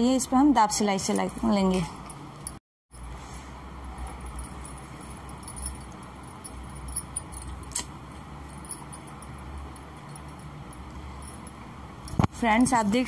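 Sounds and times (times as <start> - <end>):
low steady hum: 0.0 - 13.0
beads clinking: 4.0 - 12.2.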